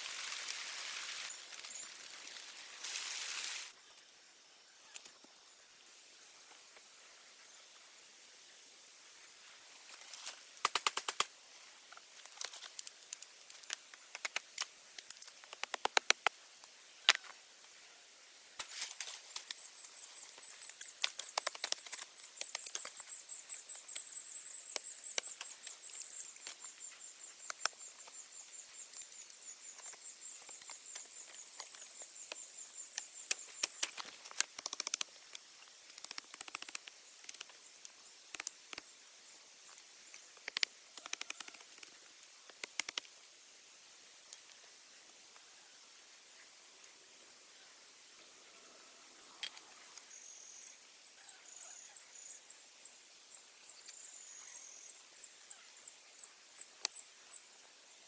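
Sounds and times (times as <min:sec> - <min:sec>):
rustling in leaf litter: 0:00.0 - 0:03.8.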